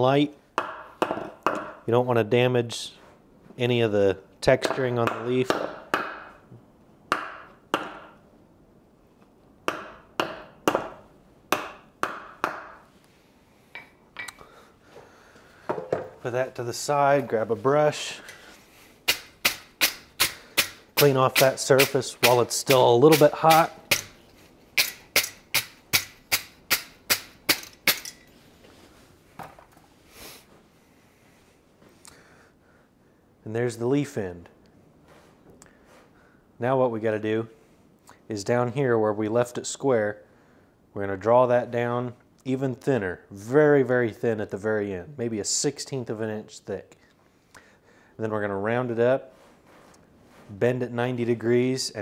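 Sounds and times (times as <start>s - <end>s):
wire brush scrubbing hot steel: 19.1s - 24.1s.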